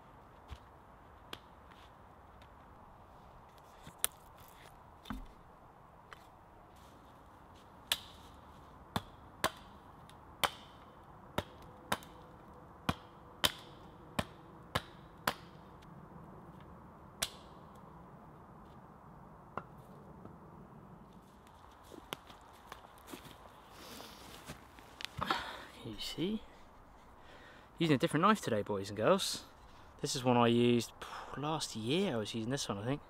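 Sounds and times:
hatchet chopping wood: 8.9 - 9.7, 10.4 - 10.8, 11.4 - 12.1, 12.9 - 15.6.

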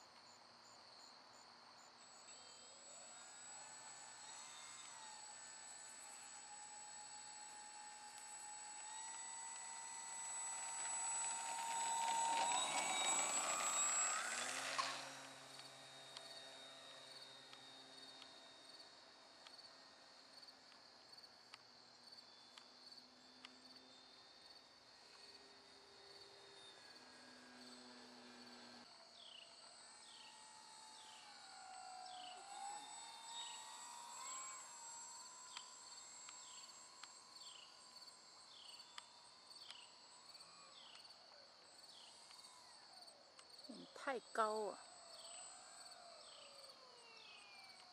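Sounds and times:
faint plane motor drone: 0.0 - 47.9
electric motor and propeller whining: 1.7 - 47.9
crickets chirping: 8.4 - 42.2.

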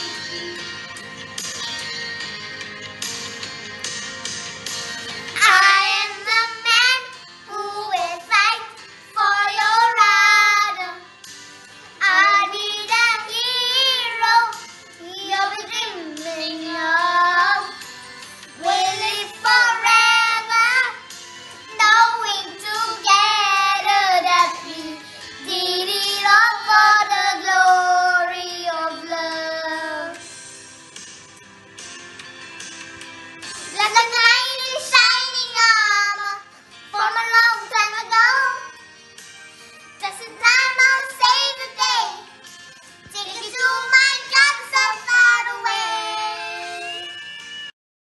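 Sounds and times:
soft musical backing: 0.0 - 47.7
child singing a slow song: 21.9 - 30.2, 43.1 - 47.1.

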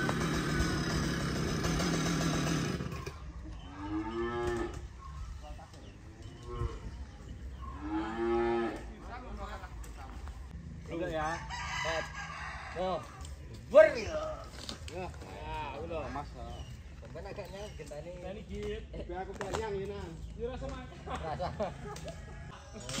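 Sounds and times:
chainsaw running: 0.0 - 3.4
cow mooing: 3.7 - 4.9, 7.6 - 8.9.

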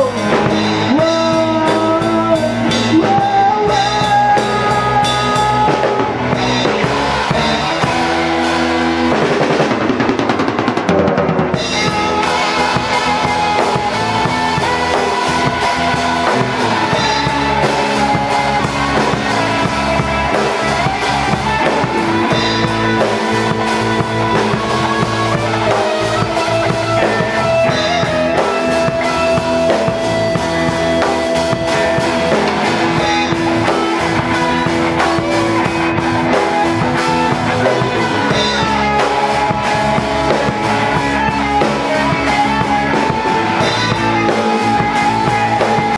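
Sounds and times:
drum kit: 0.0 - 45.9
electric bass: 0.0 - 45.9
electric guitars: 0.0 - 45.9.

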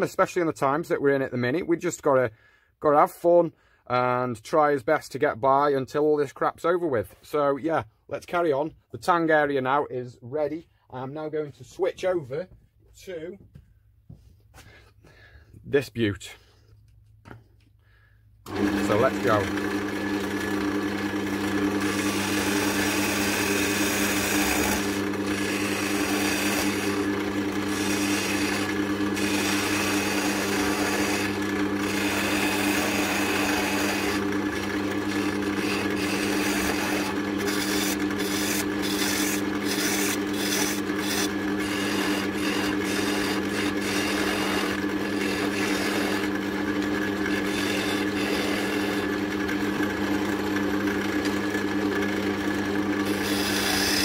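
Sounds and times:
wood lathe motor hum: 18.4 - 54.0
chisel scraping spinning wood: 18.5 - 54.0.

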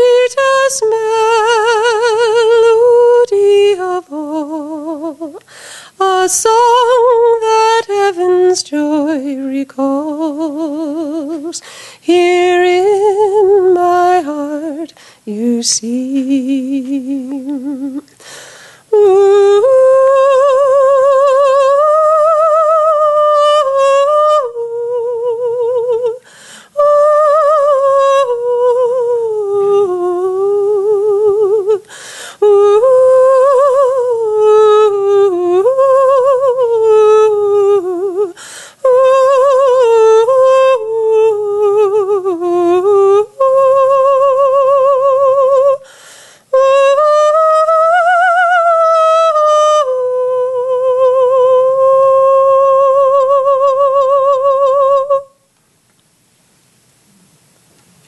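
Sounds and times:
woman singing wordless melody: 0.0 - 55.6
woman breathing in: 5.4 - 6.0, 11.6 - 12.0, 15.0 - 15.2, 18.2 - 18.9, 26.2 - 26.7, 31.9 - 32.4, 38.4 - 38.8, 45.8 - 46.5.

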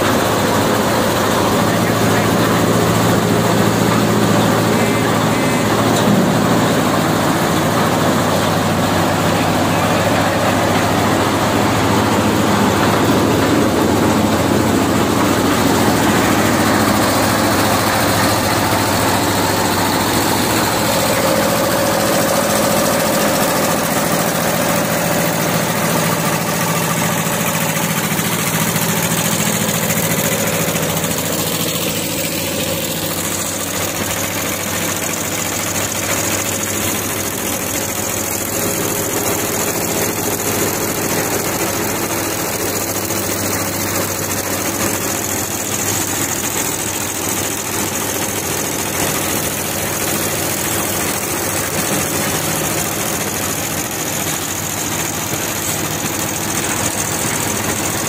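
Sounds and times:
diesel engine running: 0.0 - 58.0.

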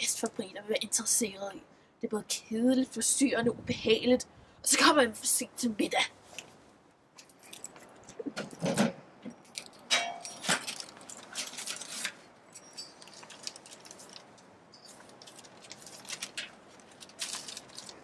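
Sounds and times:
paper rustling: 10.4 - 12.2, 13.0 - 18.0.

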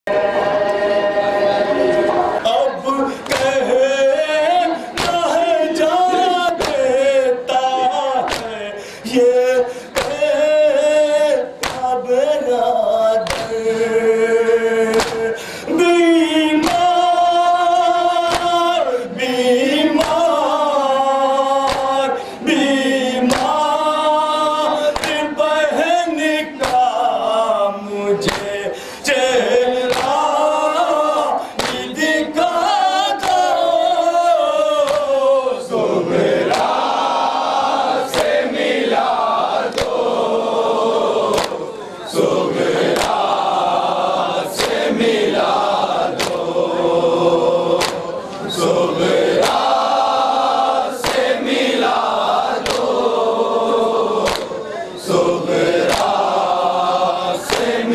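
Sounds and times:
men chanting a lament: 0.1 - 57.9
man reciting into a microphone: 2.3 - 57.9
sharp rhythmic beats: 23.2 - 23.9, 34.8 - 57.9.

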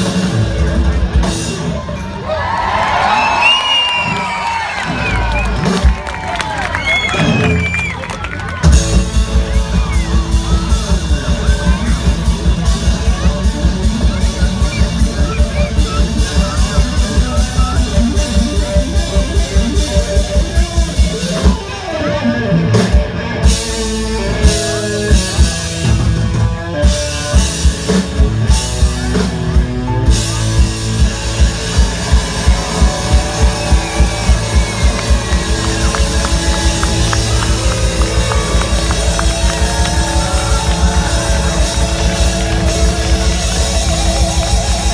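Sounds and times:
guitar: 0.0 - 44.9
live rock band: 0.0 - 44.9
drum kit beat: 8.6 - 22.0, 22.6 - 44.9.

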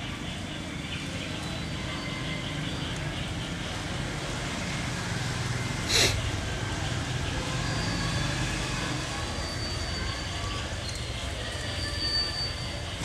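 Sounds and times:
faint voices: 5.8 - 13.0.

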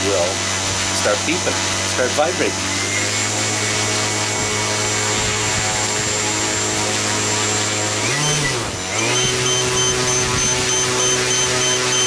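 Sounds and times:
electric model plane motor: 0.0 - 12.0
rapid high-pitched beeping: 9.1 - 12.0.

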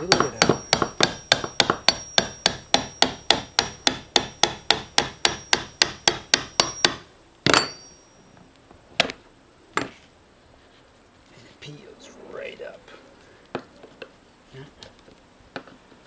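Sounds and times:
hammer tapping chisel handle: 0.0 - 7.9
loud knock with ring: 5.0 - 8.1.

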